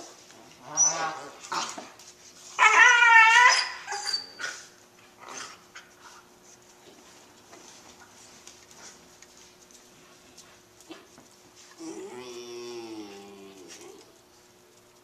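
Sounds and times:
puppies whining and yipping: 2.6s - 4.7s.

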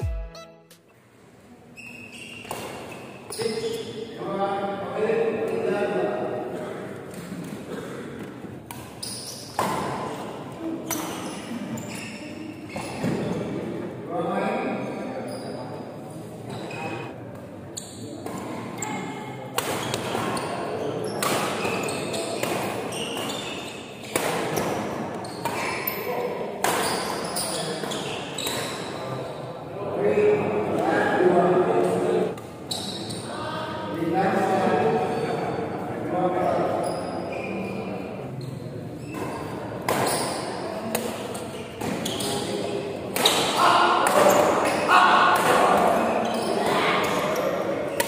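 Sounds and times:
racket hitting shuttlecock: 19.5s - 20.4s, 21.2s - 23.4s, 26.6s - 27.2s, 43.1s - 46.0s.

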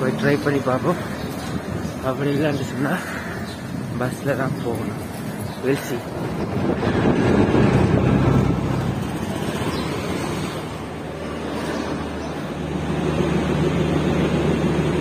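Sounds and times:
three-wheeler engine and road noise: 0.0s - 15.0s
wind on microphone: 1.2s - 12.2s
railway station background noise: 8.7s - 12.8s.

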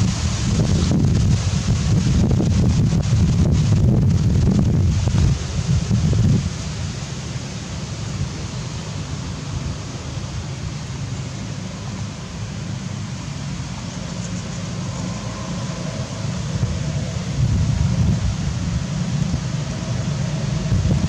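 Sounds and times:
wind buffeting microphone: 0.0s - 7.0s, 12.7s - 21.0s.

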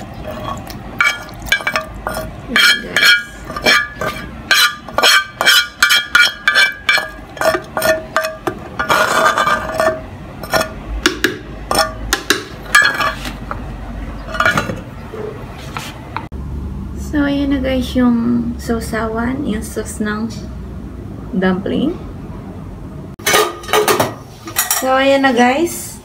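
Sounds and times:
metal spoon scraping a pan: 0.0s - 10.8s, 11.7s - 13.6s, 14.3s - 15.9s.

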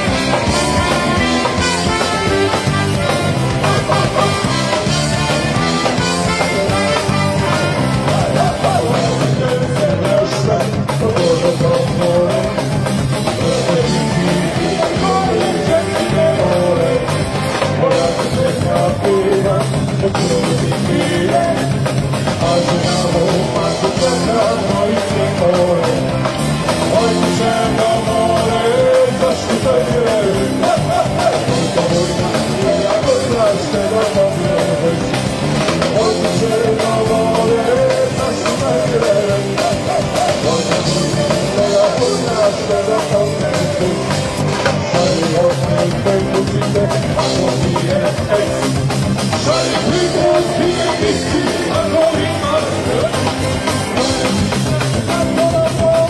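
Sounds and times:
person singing: 0.0s - 56.0s
rock band playing live: 0.0s - 56.0s.

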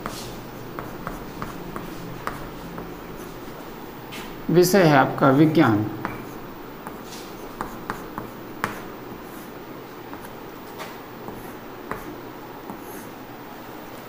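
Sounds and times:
chalk scratching on chalkboard: 0.0s - 3.6s, 6.0s - 13.2s.

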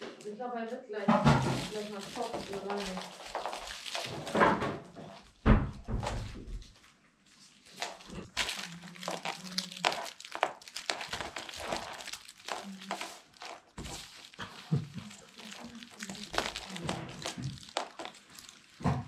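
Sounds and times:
dog scrabbling on wooden floor: 1.2s - 6.8s
plush toy crinkling: 1.2s - 19.0s.

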